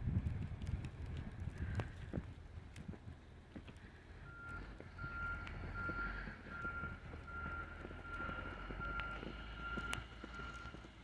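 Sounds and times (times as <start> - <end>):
low engine rumble: 0.0 - 11.0
backup alarm beeping: 4.3 - 10.8.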